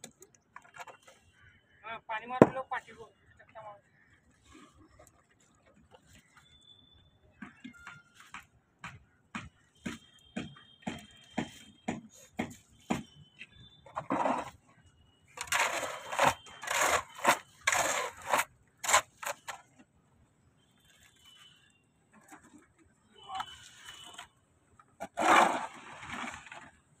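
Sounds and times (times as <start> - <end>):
hoe scraping wet concrete: 13.9 - 14.7, 15.3 - 19.7, 25.0 - 26.9.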